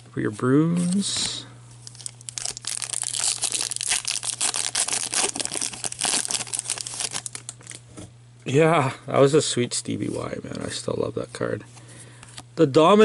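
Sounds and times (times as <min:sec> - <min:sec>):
wrapper tearing and crinkling: 0:01.8 - 0:07.8.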